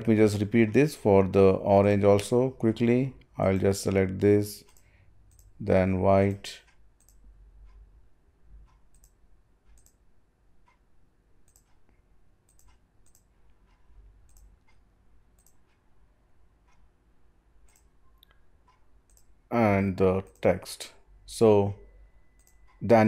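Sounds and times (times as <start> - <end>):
computer mouse clicking: 4.6 - 5.6, 6.3 - 7.8, 8.6 - 10.0, 11.4 - 15.8, 17.6 - 19.4, 22.3 - 22.8.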